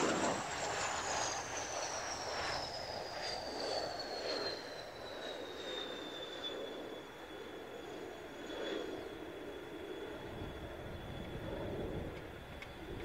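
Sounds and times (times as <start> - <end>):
high jet whine falling in pitch: 0.0 - 13.0
jet engine roar: 0.0 - 13.0.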